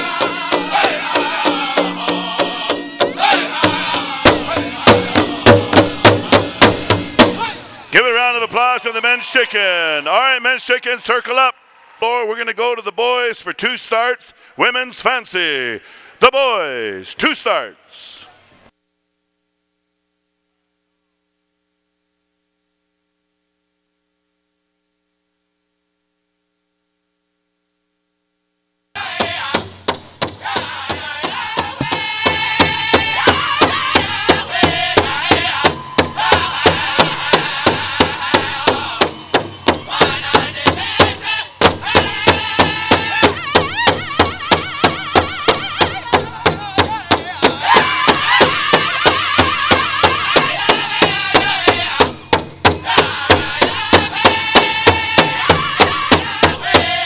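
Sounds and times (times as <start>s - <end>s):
big drum fast beat: 0.0s - 7.6s, 29.0s - 57.0s
singers high-pitched singing: 0.0s - 7.7s, 29.0s - 57.0s.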